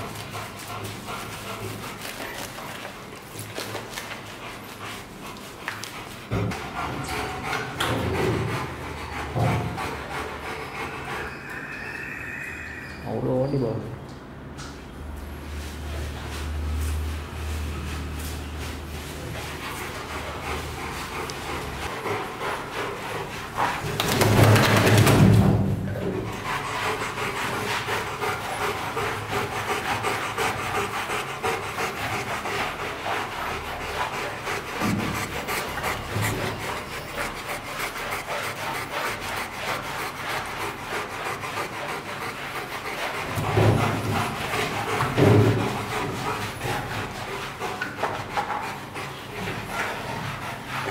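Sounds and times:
brush scrubbing wet fur: 15.4s - 23.9s, 26.1s - 50.9s.

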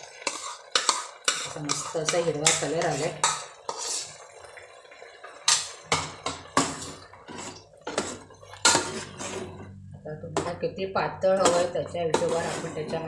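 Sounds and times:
metal spoon scraping a bowl: 0.2s - 4.2s, 6.7s - 9.7s, 11.4s - 13.0s.

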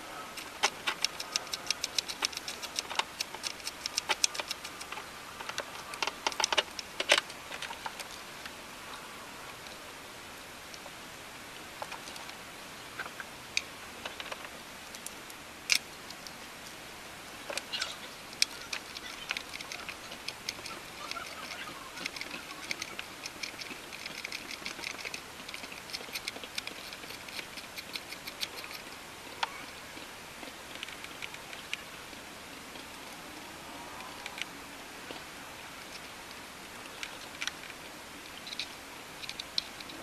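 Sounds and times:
rapid light ticking: 0.3s - 8.2s, 18.3s - 29.6s.

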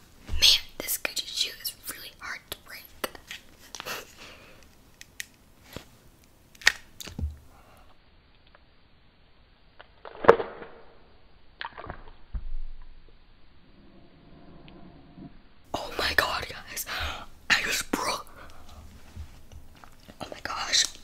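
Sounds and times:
stick snapping: 6.5s - 7.2s.

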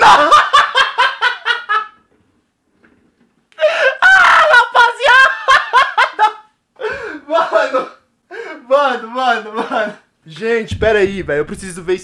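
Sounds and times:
man laughing hysterically: 0.0s - 2.0s, 4.1s - 7.9s.

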